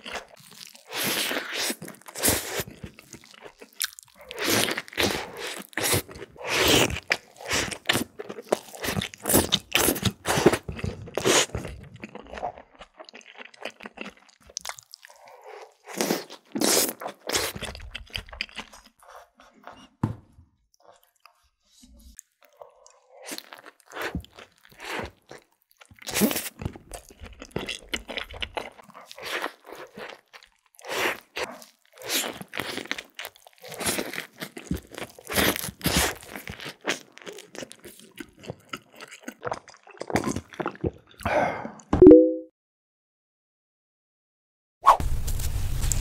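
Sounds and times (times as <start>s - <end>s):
crunchy bites and wet chewing: 0.0s - 19.7s, 22.1s - 41.3s
short loud low tone: 42.0s - 42.5s.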